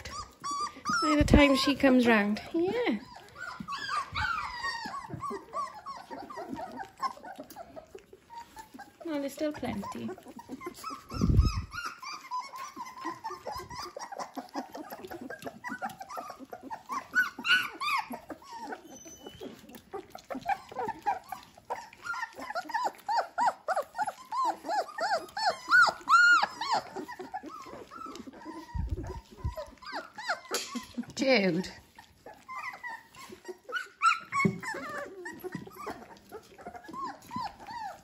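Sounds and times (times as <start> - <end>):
puppies whining and squeaking: 0.0 - 38.0
wet clicks of eating: 1.8 - 11.2, 11.9 - 38.0.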